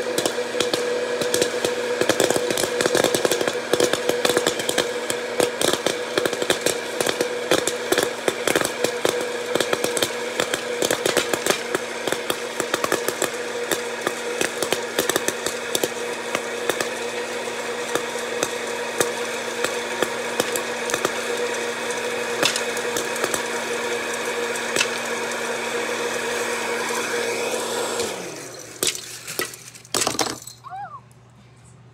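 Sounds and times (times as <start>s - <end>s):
popcorn popping: 0.0s - 31.0s
popcorn popper motor hum: 0.0s - 31.3s
motor winding down: 6.2s - 28.8s.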